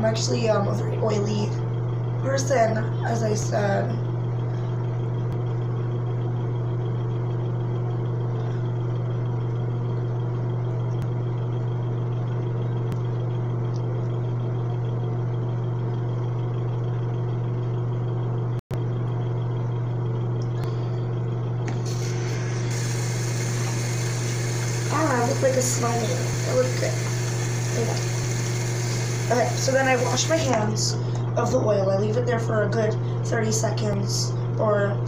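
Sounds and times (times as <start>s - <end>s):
steady low hum: 0.0s - 35.0s
bright hiss: 21.8s - 30.4s.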